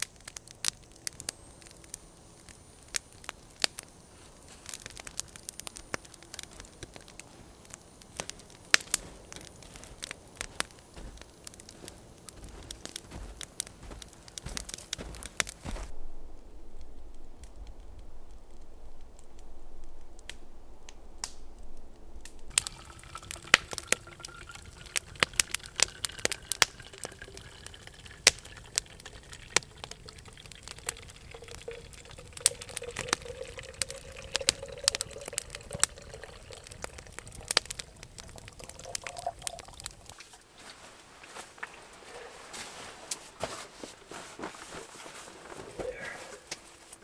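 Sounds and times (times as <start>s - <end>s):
sharp crackles and clicks: 0.0s - 41.8s
water pouring into plastic bottle: 22.5s - 40.2s.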